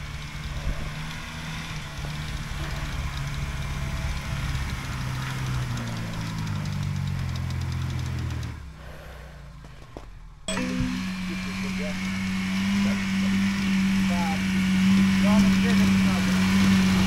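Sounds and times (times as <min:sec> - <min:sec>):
car engine running under load: 0:00.0 - 0:17.0.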